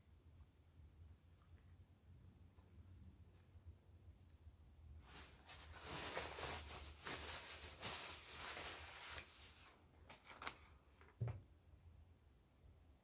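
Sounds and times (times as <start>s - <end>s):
paper napkins rustling: 5.0s - 11.2s.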